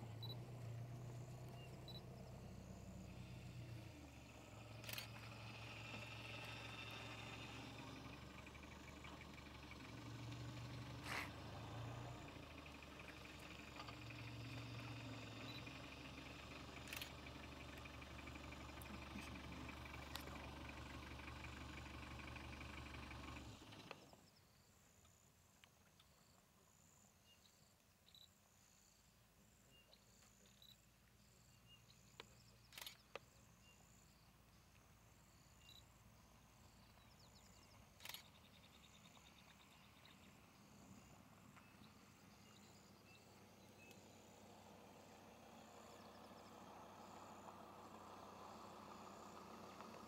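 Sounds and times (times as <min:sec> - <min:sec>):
faint outdoor ambience: 0:00.0 - 0:50.0
faint high chirps: 0:01.2 - 0:03.5.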